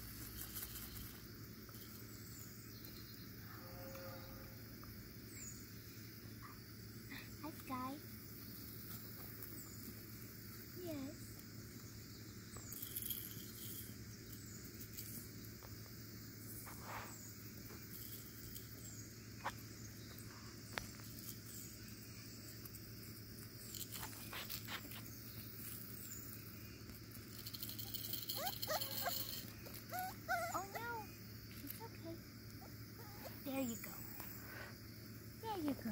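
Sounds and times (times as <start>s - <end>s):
puppy whining: 27.8s - 31.2s, 32.6s - 33.5s.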